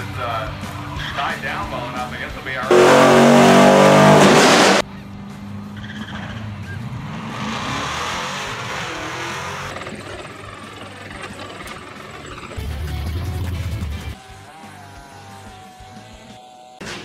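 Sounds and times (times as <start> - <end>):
distant engine and race-track noise: 0.0 - 14.1
engine at full throttle: 2.7 - 4.8, 6.9 - 12.6.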